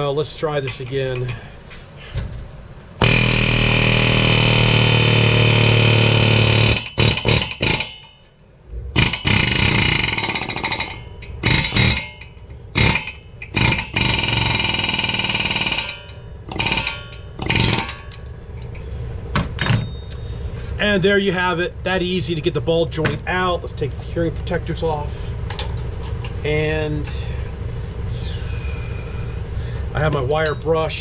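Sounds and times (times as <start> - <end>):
pneumatic air hammer hammering: 3.0 - 20.3.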